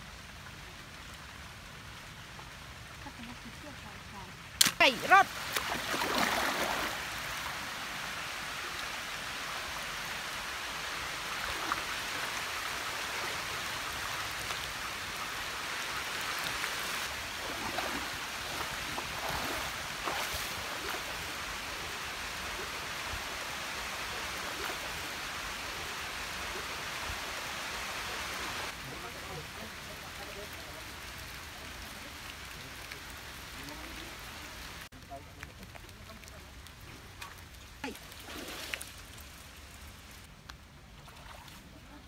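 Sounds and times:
stream flowing: 0.0 - 42.0
splashes of wading: 4.3 - 28.8, 35.7 - 42.0.

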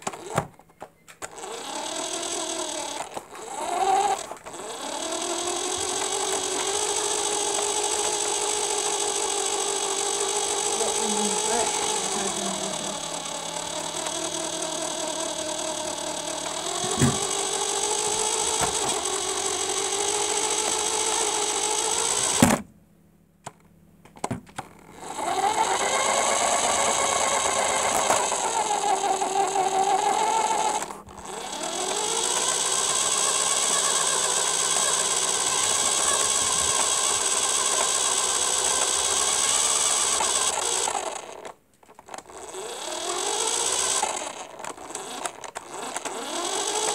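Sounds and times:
toy car motor whine: 0.0 - 22.6, 24.2 - 46.9
clicks: 5.5 - 19.1, 43.7 - 46.9.

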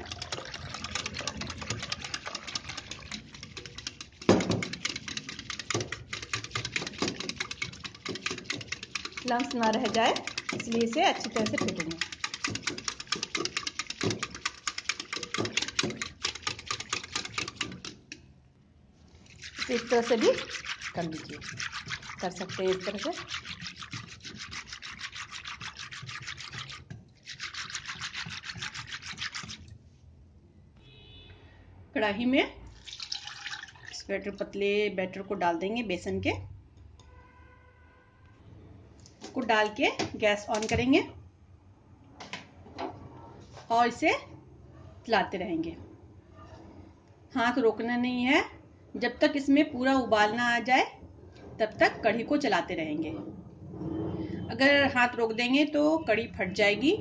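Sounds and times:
wire whisk beating batter: 0.0 - 18.2, 19.2 - 29.7.

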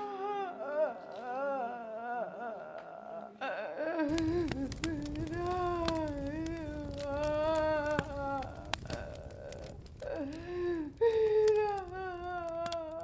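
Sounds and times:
mournful wail: 0.0 - 13.0
log fire crackling: 4.1 - 13.0.

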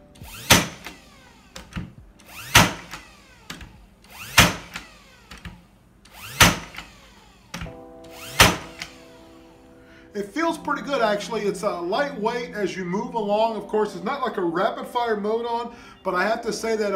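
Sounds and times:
nail gun firing into wood: 0.3 - 1.0, 1.6 - 5.6, 6.2 - 6.9, 8.3 - 9.0.

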